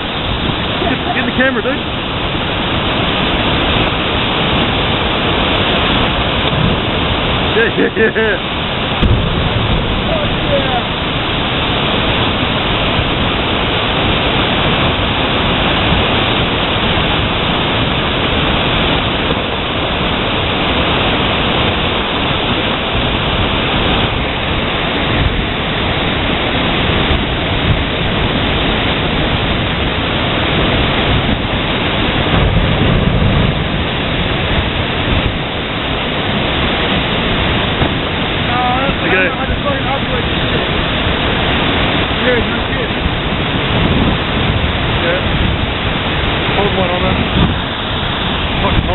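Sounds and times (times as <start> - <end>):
river rushing: 0.0 - 48.9.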